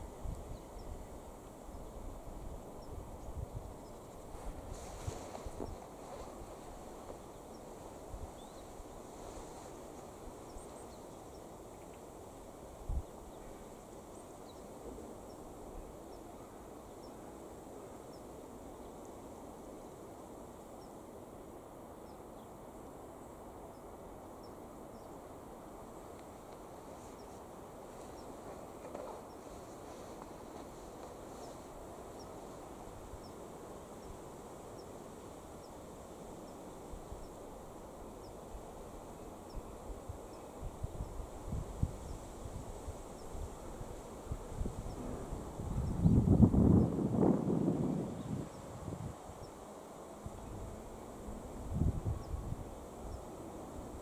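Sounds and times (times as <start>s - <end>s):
wind hiss: 0.0s - 54.0s
wind buffeting microphone: 44.3s - 49.2s.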